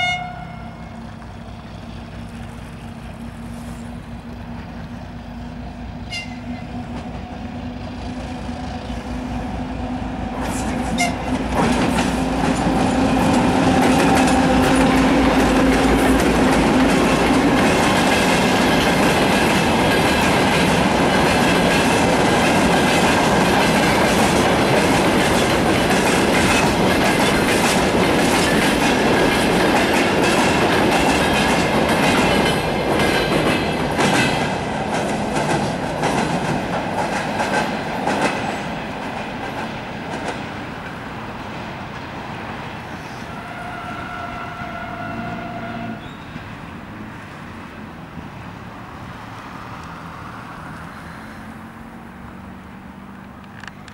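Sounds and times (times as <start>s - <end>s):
diesel locomotive passing: 0.0s - 53.9s
train wheels clicking over rail joints: 0.9s - 43.2s.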